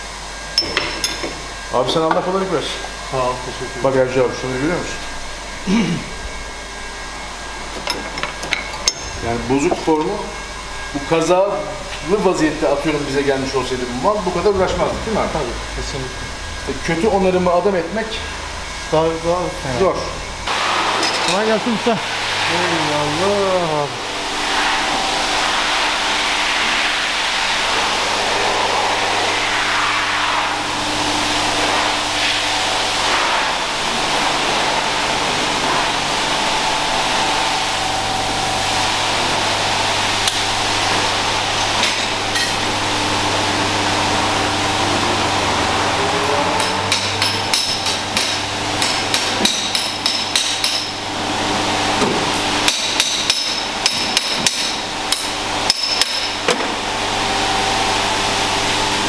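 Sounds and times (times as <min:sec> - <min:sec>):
steady machine hum: 0:00.0 - 0:59.0
hammer striking sheet metal: 0:46.6 - 0:51.0, 0:52.1 - 0:56.7.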